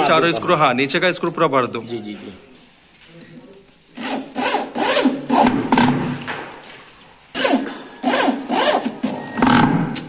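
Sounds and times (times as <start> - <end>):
electric drill driving screws: 7.4 - 9.8.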